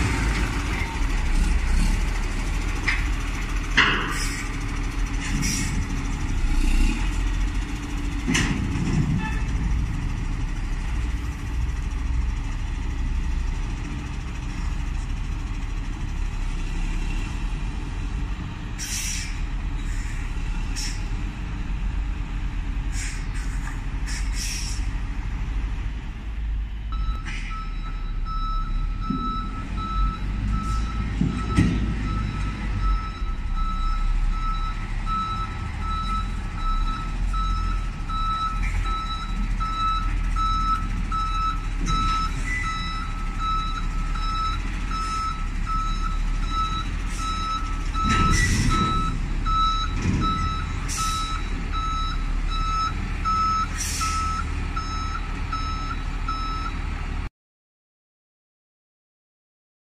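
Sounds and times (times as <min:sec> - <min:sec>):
reversing alarm beeping: 0:26.9 - 0:56.8.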